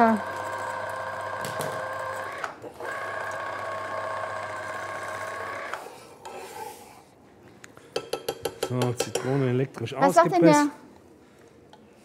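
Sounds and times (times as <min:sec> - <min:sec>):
citrus juicer motor whine: 0:00.0 - 0:06.0.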